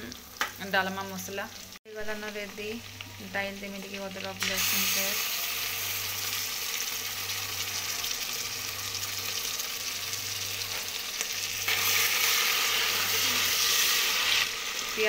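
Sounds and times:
onions sizzling in hot oil: 0.0s - 15.0s.

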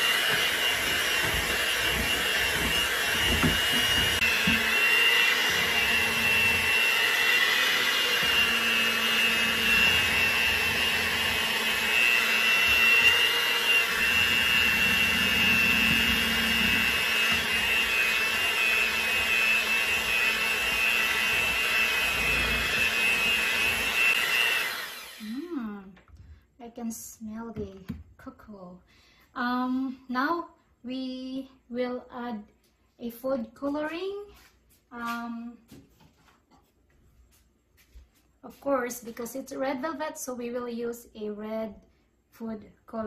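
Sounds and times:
electric hand mixer whirring: 0.0s - 25.8s.

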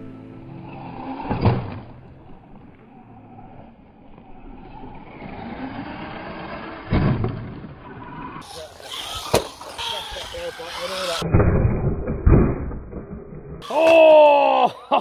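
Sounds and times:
rc truck motor and tyres: 0.4s - 11.3s.

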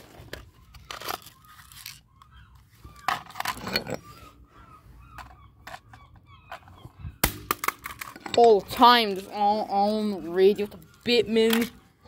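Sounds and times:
objects scraping and knocking on concrete: 2.8s - 4.4s.

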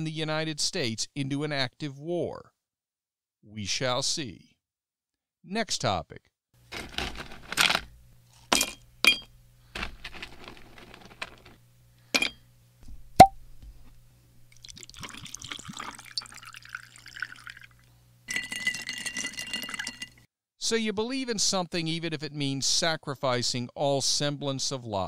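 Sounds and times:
glass clinking: 8.5s - 9.3s, 18.3s - 20.2s
liquid being poured: 14.5s - 20.2s.

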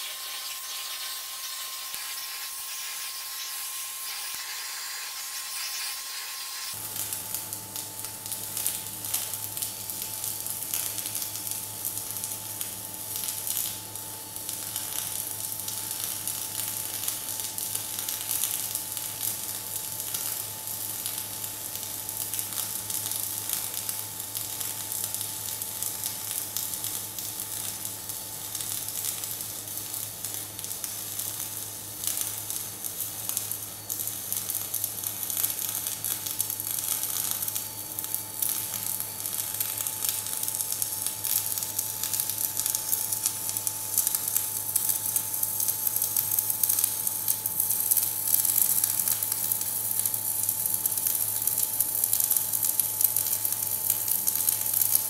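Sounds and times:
steady hum: 0.0s - 9.0s
welding arc crackling: 0.0s - 55.0s.

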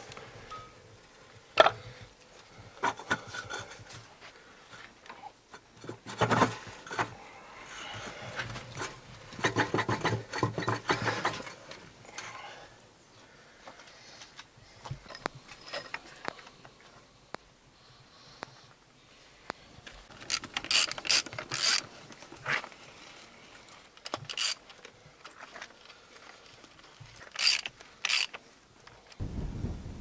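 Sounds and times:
metal clicks and scraping: 8.4s - 12.3s, 20.1s - 22.8s, 23.6s - 25.8s, 26.8s - 29.2s
rapid rasping clicks: 27.2s - 28.4s.

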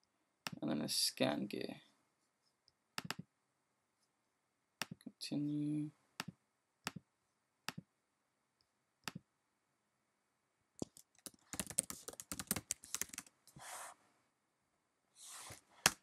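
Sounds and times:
mouse clicks: 3.0s - 3.3s
computer keyboard typing: 10.8s - 13.3s.

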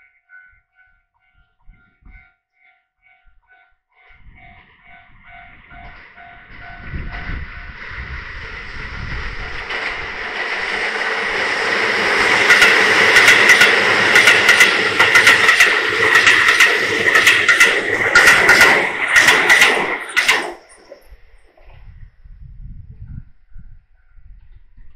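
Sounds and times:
train rumble: 4.0s - 24.6s
wheels clacking over rail joints: 4.8s - 21.6s.

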